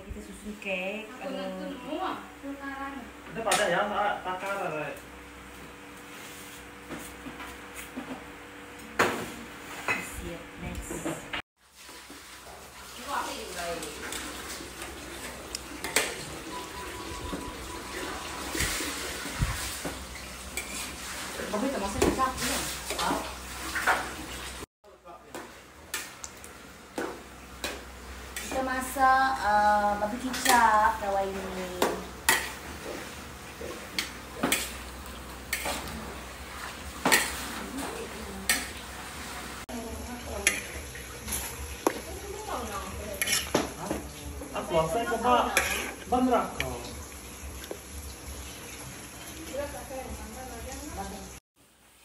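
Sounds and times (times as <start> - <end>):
meat sizzling in a wok: 11.6 - 24.7, 25.6 - 52.0
metal spatula scraping wok: 20.5 - 21.6, 40.4 - 41.6, 43.1 - 43.8, 45.4 - 46.2.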